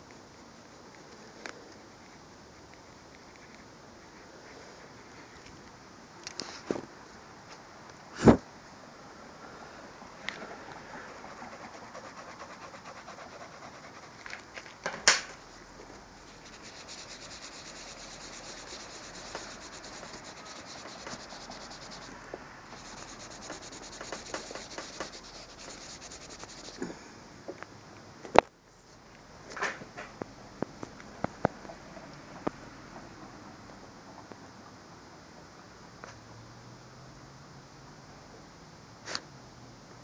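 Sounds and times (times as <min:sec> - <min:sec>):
pencil rubbing on paper: 0:11.1 - 0:14.2, 0:16.2 - 0:26.8.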